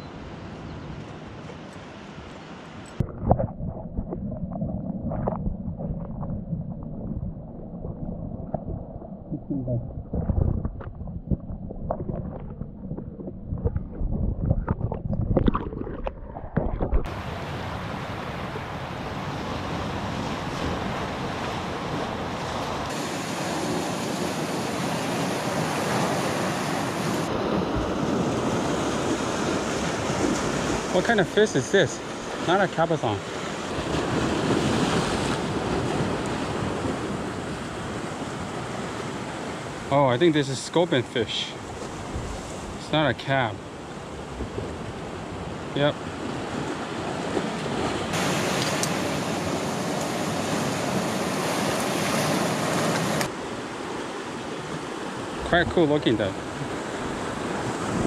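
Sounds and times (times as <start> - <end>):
wind on microphone: 3.0 - 30.9, 41.7 - 42.8, 56.5 - 58.0
waves washing over rocks: 17.1 - 41.0, 44.7 - 58.0
surf breaking against rocks: 19.2 - 37.5.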